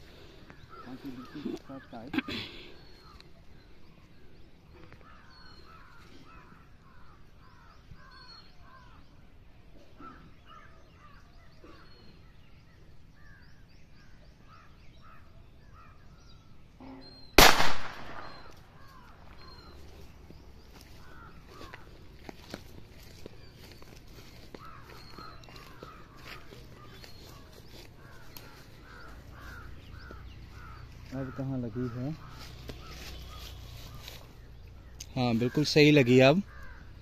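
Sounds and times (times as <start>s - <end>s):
birds calling: 0.0s - 37.0s
revolver shot with echo: 17.4s - 18.5s.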